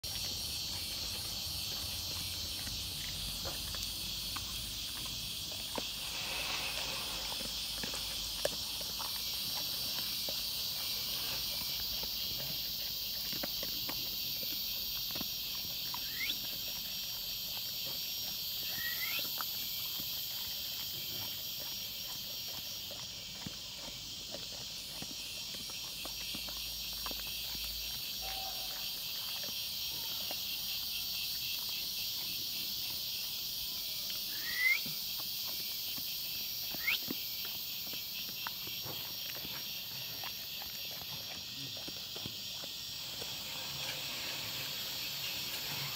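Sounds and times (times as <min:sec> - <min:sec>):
crickets chirring: 0:00.0 - 0:45.9
dog chewing dry kibble: 0:07.1 - 0:30.9, 0:35.2 - 0:43.0.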